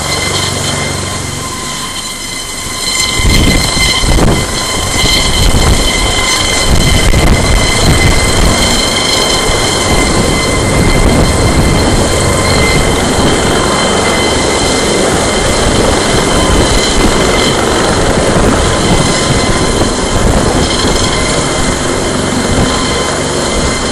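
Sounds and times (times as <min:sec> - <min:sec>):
helicopter rotor and engine: 0:00.0 - 0:23.9
high whine: 0:00.0 - 0:23.9.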